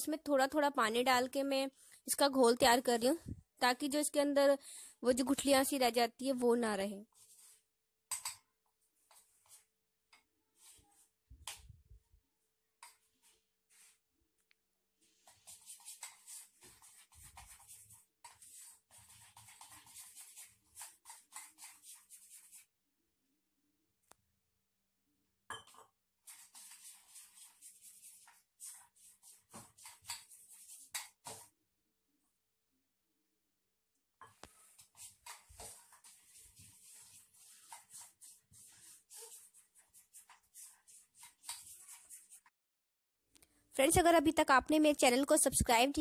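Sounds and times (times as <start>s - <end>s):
hand stirring batter in steel pot: 15.0s - 22.7s, 26.2s - 31.6s, 34.3s - 42.5s.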